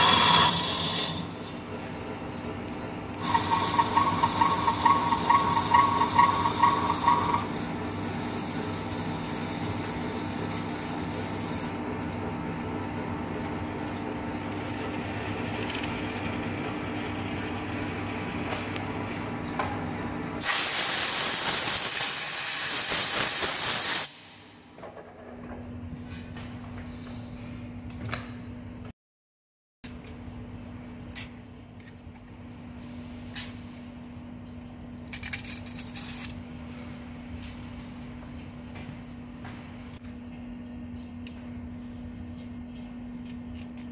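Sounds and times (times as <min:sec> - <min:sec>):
lathe cutting with low hum: 0:00.0 - 0:01.6, 0:03.2 - 0:08.2
compressed air hissing: 0:20.4 - 0:24.5.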